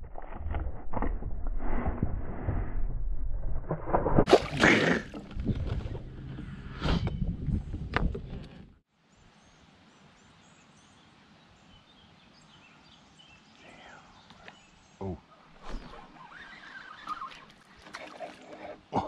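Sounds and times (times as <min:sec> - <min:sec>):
kayak paddle splashing water: 0:04.2 - 0:06.0
small birds chirping: 0:09.1 - 0:19.0.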